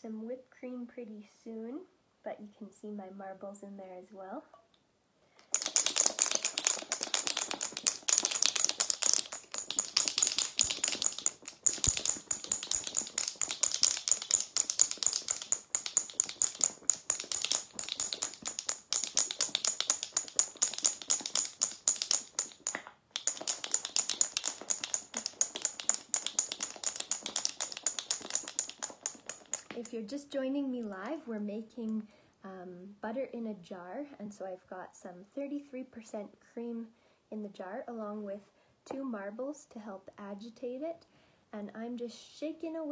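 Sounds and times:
marbles rattling in a jar: 5.5 - 30.1.

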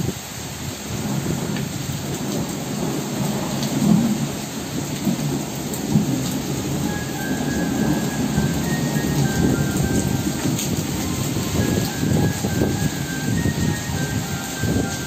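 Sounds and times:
rain falling steadily: 0.0 - 15.0
thunder rumbling: 0.9 - 15.0
faint steady musical tones: 6.7 - 15.0.

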